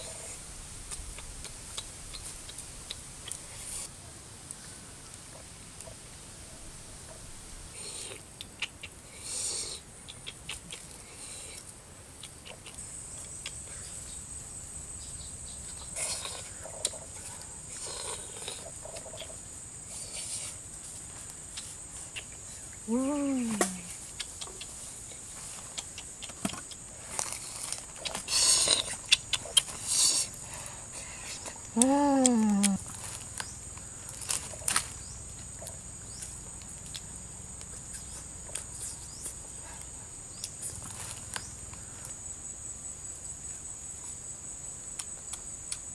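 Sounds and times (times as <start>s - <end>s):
high insect whine: 12.8s - 45.9s
rustling and crackling: 23.4s - 30.3s, 32.6s - 37.0s, 40.5s - 42.2s.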